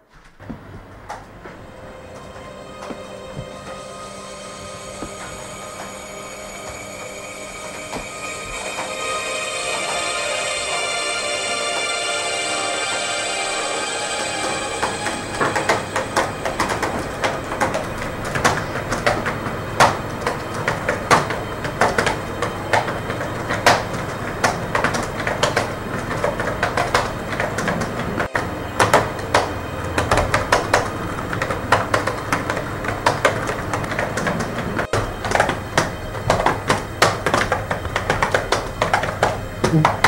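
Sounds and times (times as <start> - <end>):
steady background noise: 0.0 - 40.0
laptop keyboard typing: 14.4 - 40.0.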